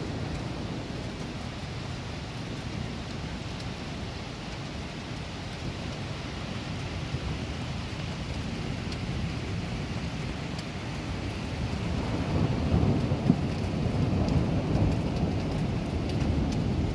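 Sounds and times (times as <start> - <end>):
low thunder rumbling: 0.0 - 4.1, 7.0 - 16.9
steady rain falling: 0.0 - 16.9
faint drip ticks: 13.0 - 16.8.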